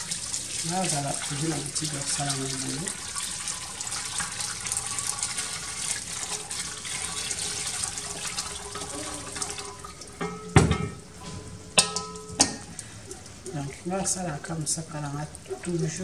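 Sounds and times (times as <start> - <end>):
water pouring through a sieve: 0.0 - 10.2
water splashing into a pot: 0.0 - 16.0.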